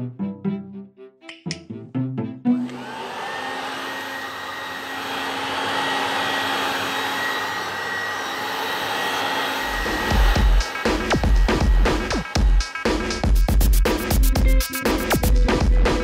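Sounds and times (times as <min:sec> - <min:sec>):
plucked-string music notes: 0:00.0 - 0:02.6
vacuum cleaner running: 0:02.6 - 0:13.3.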